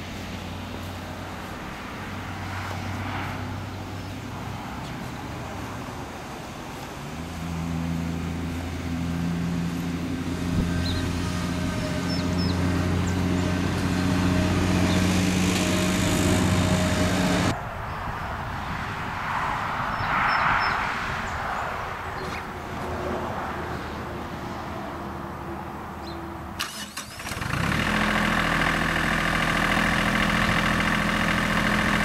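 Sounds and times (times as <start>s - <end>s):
tractor diesel engine idling: 26.6s - 32.0s.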